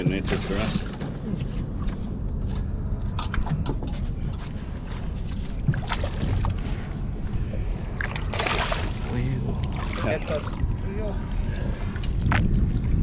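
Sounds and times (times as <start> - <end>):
low rumble: 0.0 - 13.0
fish splashing at surface: 8.0 - 10.6.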